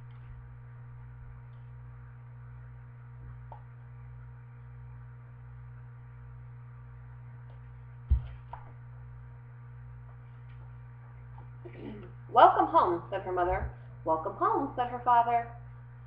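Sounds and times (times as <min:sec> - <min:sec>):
low electrical hum with hiss: 0:00.0 - 0:16.0
book thump: 0:08.1 - 0:08.6.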